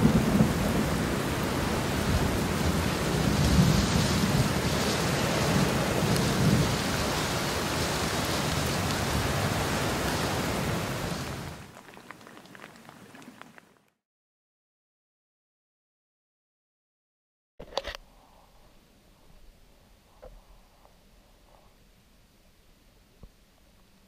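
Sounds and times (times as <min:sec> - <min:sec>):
steady rain falling: 0:00.0 - 0:14.0
scattered drips: 0:11.6 - 0:13.8.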